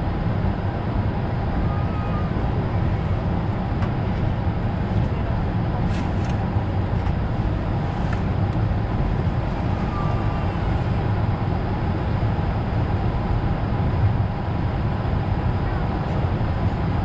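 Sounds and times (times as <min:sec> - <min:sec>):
airplane cabin rumble and hiss: 0:00.0 - 0:17.0.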